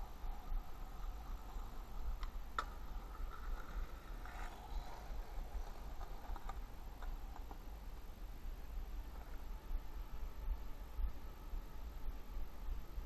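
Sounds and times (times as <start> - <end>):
low city rumble: 0.0 - 13.0
faint ticks and clicks: 0.2 - 7.7.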